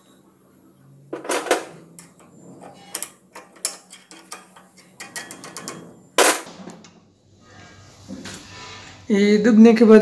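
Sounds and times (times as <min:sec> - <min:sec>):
metal clack: 0:01.2 - 0:07.0
metal clicks and scrapes: 0:02.0 - 0:06.6.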